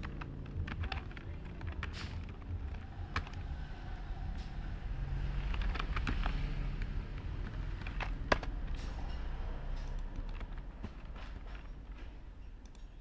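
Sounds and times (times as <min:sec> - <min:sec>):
computer keyboard keystrokes: 0:00.0 - 0:03.6, 0:05.5 - 0:08.8, 0:09.8 - 0:10.7
low background rumble: 0:00.0 - 0:13.0.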